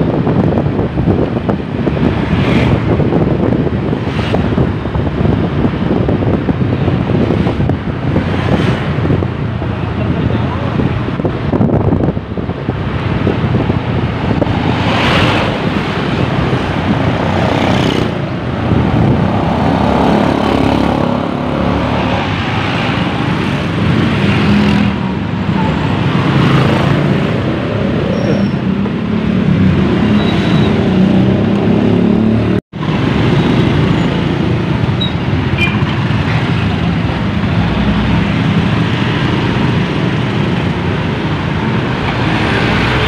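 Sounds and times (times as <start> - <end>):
other motorcycles: 0.0 - 43.0
road noise with wind hiss: 0.0 - 43.0.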